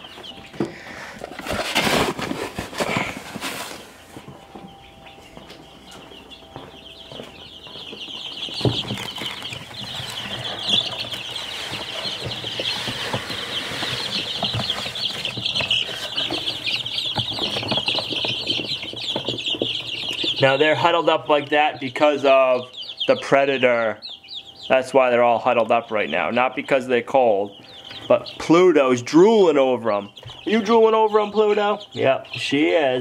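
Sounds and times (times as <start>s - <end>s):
rustling: 0.0s - 5.5s, 6.4s - 20.6s
chicks peeping: 0.0s - 33.0s.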